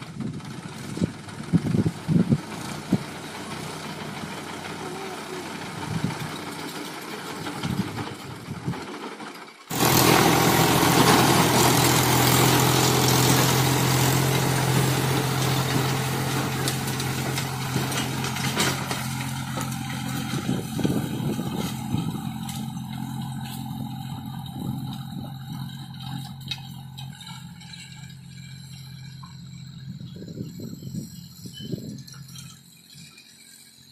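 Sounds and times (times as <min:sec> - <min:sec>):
diesel tractor engine: 0:00.0 - 0:33.9
rotavator tilling soil: 0:00.0 - 0:33.9.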